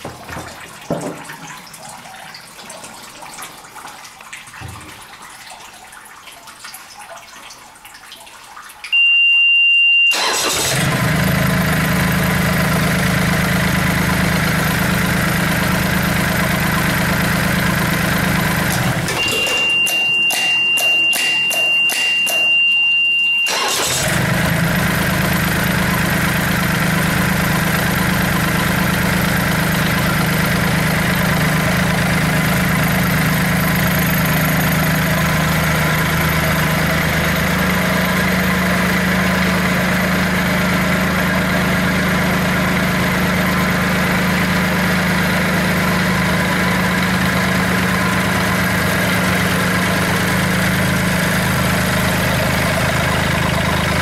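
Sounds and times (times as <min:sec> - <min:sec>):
high steady warning beep: 0:08.9 - 0:10.2, 0:19.2 - 0:23.5
electric starter cranking: 0:10.1 - 0:13.3, 0:16.8 - 0:20.4, 0:23.5 - 0:27.2
outboard motor idling: 0:10.1 - 0:21.3, 0:23.5 - 0:54.0.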